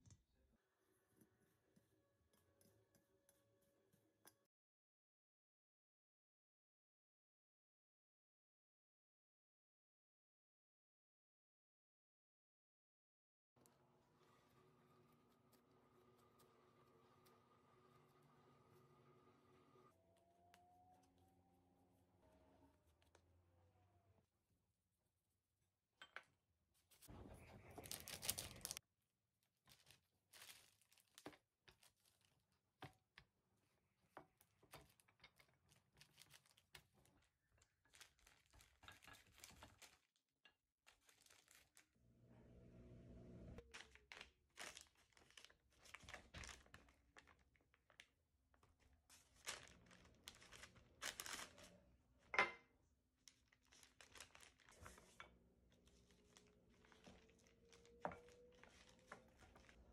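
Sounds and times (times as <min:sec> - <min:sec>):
sheet crinkling and rustling: 0:26.9 - 0:28.8, 0:29.7 - 0:32.3, 0:34.7 - 0:40.1, 0:40.9 - 0:41.9, 0:43.6 - 0:51.8, 0:53.2 - 0:59.9.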